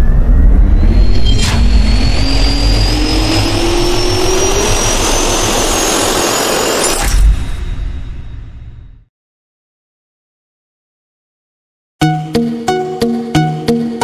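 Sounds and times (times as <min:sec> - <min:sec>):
jet engine spooling up: 0:00.0 - 0:08.0.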